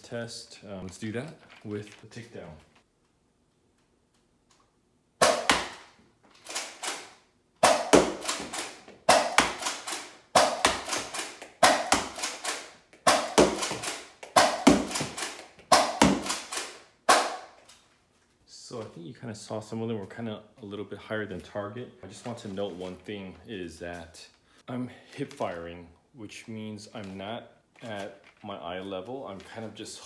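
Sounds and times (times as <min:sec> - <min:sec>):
toy blaster pumping and firing: 0:05.2 - 0:17.3.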